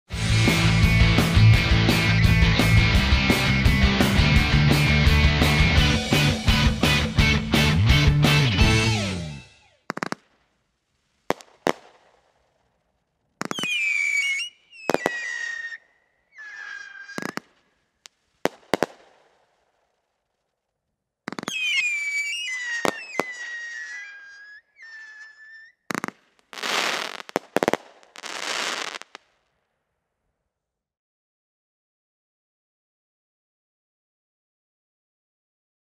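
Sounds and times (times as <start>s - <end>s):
whistling fireworks: 9.4s - 10.4s, 11.3s - 12.4s, 13.4s - 17.8s, 18.4s - 19.7s, 21.3s - 29.3s
firework launch cracks: 9.6s - 12.8s, 13.4s - 15.8s, 16.4s - 19.9s, 21.3s - 24.1s, 25.9s - 29.4s
firework hissing bursts: 13.4s - 15.8s, 16.4s - 17.5s, 21.4s - 29.2s.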